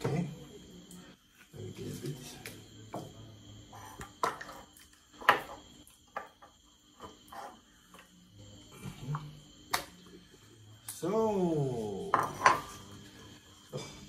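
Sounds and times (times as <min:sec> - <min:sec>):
bowls knocking and clinking: 0:12.0 - 0:12.9.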